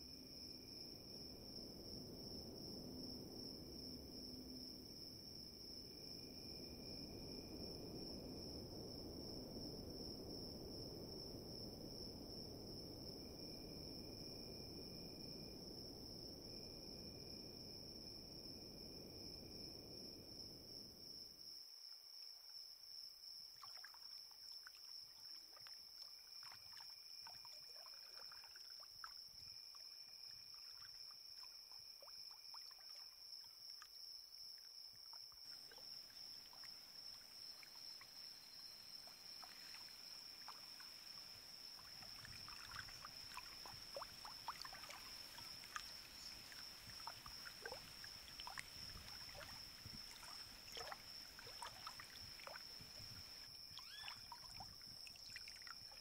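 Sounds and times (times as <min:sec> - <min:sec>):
high-pitched insect drone: 0:53.1 - 0:54.3.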